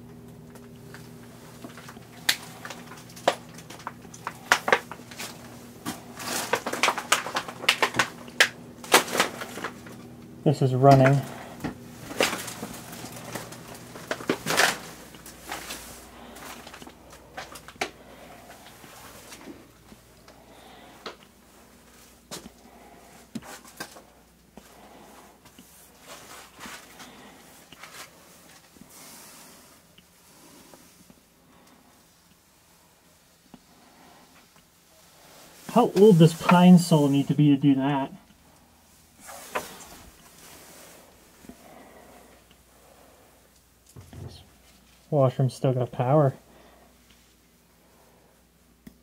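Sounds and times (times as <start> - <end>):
steady low hum: 0.0 - 49.0
footsteps crunching over junk: 1.0 - 10.1, 10.9 - 28.8.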